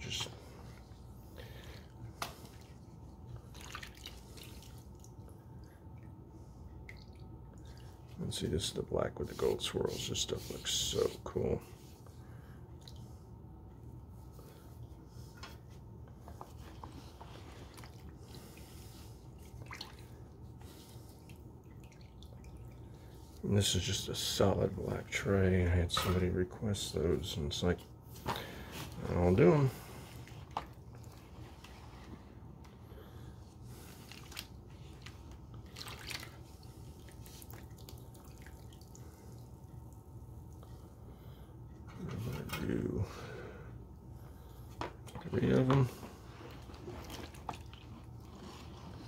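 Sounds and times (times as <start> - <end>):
low steady hum: 0.0 - 49.0
liquid sloshing and dripping: 0.1 - 8.4, 11.8 - 23.5, 29.8 - 32.8, 33.7 - 41.0, 44.7 - 49.0
liquid dripping and splashing: 1.6 - 6.2, 6.8 - 8.1, 19.4 - 23.4, 33.8 - 40.7.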